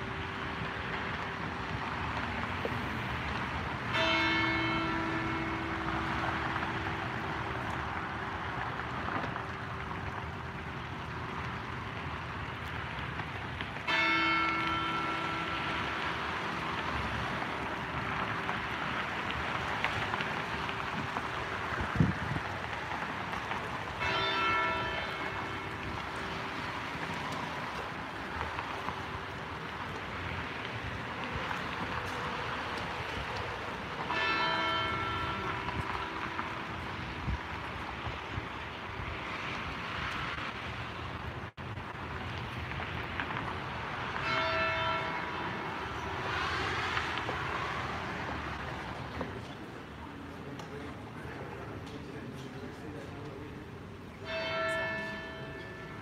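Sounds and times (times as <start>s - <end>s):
large church bell tolling: 3.9s - 7.9s, 13.9s - 18.4s, 24.0s - 27.8s, 34.0s - 37.8s, 44.2s - 46.8s, 54.2s - 56.0s.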